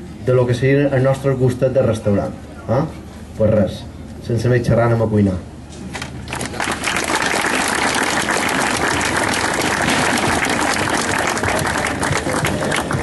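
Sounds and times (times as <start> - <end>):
audience applauding: 6.3 - 13.0.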